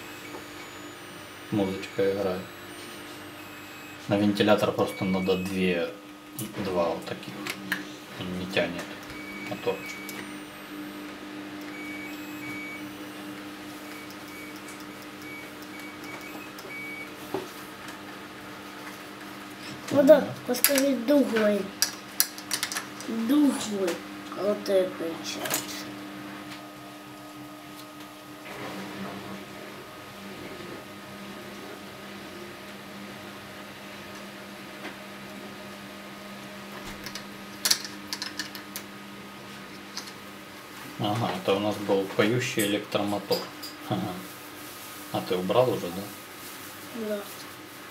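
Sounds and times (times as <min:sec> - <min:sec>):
electronic tune of high beeps: 0:00.0 - 0:04.1, 0:04.8 - 0:05.6, 0:09.1 - 0:11.0, 0:11.7 - 0:13.2
steady low hum: 0:00.0 - 0:32.5.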